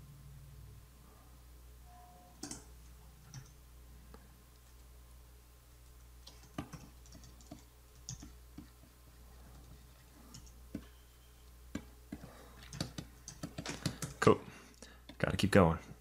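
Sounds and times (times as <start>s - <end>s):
low electrical hum: 0.0s - 16.0s
keyboard keys clicking: 12.6s - 14.2s.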